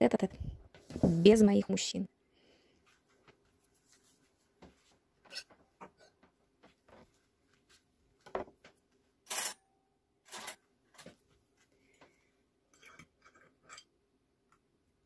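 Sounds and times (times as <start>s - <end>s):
tableware clattering and scraping: 5.3s - 6.2s, 12.7s - 13.9s.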